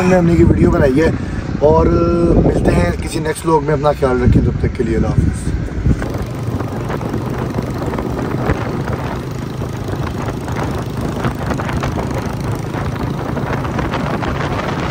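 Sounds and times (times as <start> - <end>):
motorcycle engines running: 5.6 - 14.9.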